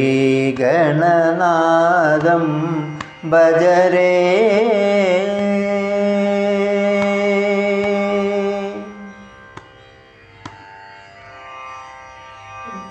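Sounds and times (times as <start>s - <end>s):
man singing: 0.0s - 9.2s.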